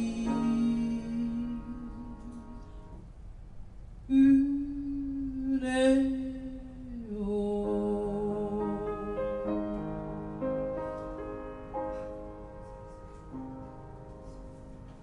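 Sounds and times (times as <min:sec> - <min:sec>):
grand piano chords: 0:00.0 - 0:04.0, 0:04.6 - 0:15.0.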